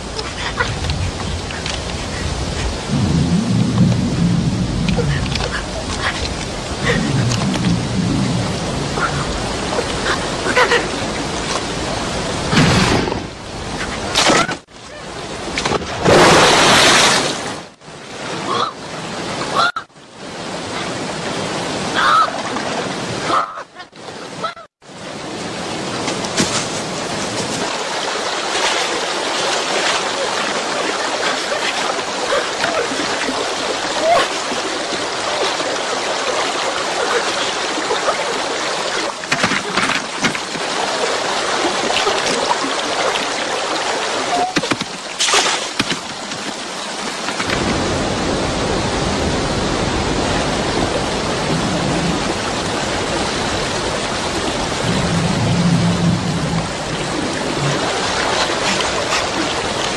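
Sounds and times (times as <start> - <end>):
river water rushing: 0.0 - 59.9
water splashes: 0.0 - 59.9.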